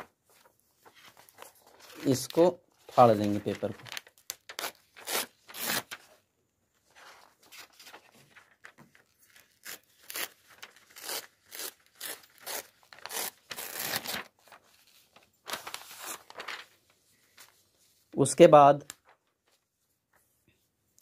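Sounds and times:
paper rustling: 0.0s - 6.2s, 6.8s - 18.1s, 18.8s - 20.4s
paper tearing: 3.9s - 6.0s, 9.3s - 14.3s.

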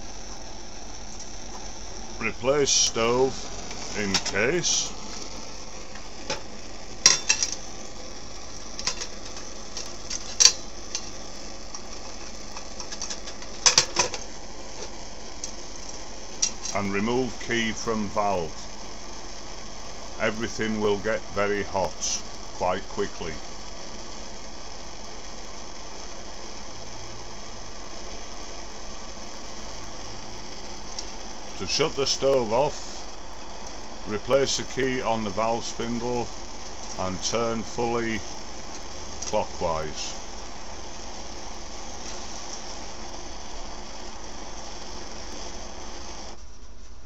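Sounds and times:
stove burner hissing: 0.0s - 47.0s.

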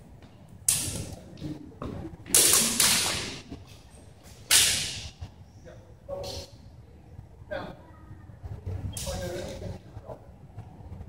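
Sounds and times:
steel swords clashing: 4.5s - 5.1s.

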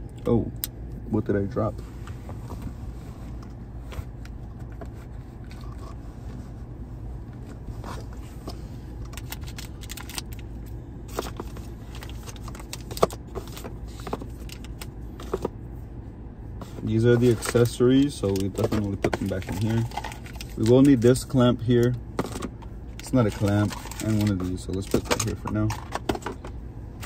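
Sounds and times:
steady low hum: 0.0s - 27.0s
plastic packaging being handled: 16.6s - 21.2s, 23.0s - 26.1s.

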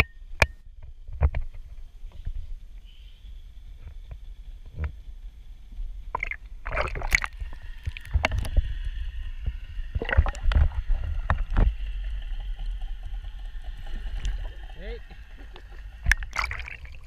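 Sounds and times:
low rumble: 5.2s - 17.0s
water sloshing and splashing: 6.1s - 8.6s, 9.9s - 17.0s.

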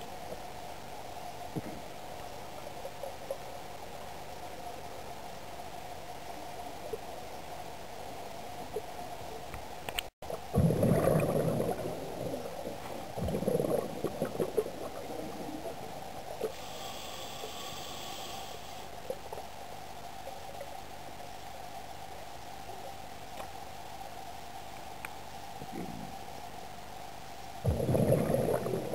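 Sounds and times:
steady low hum: 0.0s - 28.9s
underwater exhaled bubbles gurgling: 10.3s - 16.6s, 27.6s - 28.9s.

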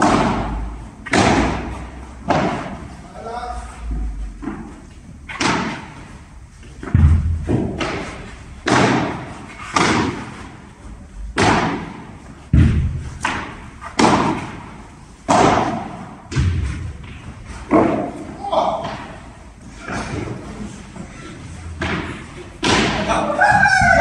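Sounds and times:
padel ball impacts echoing: 0.0s - 3.1s, 3.8s - 20.4s, 21.6s - 24.0s
heavy deep thuds: 3.7s - 18.2s.

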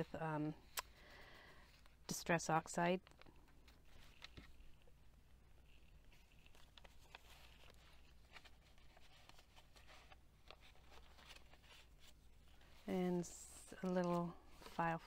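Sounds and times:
paper pages rustling: 3.0s - 5.0s, 5.6s - 12.9s, 13.8s - 15.0s.

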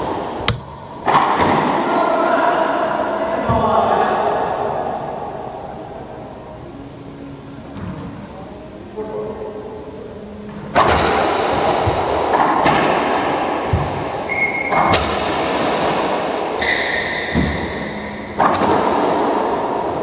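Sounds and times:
sneaker squeaks on hardwood floor: 14.3s - 14.9s
ball smacking off racquets and walls: 14.7s - 17.7s, 18.4s - 19.4s.

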